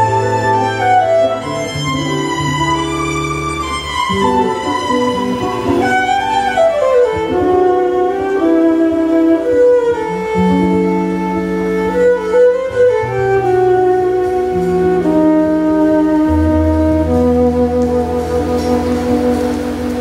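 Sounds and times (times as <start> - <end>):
bass: 0.0 - 20.0
fiddle melody: 0.0 - 20.0
guitar: 0.0 - 20.0.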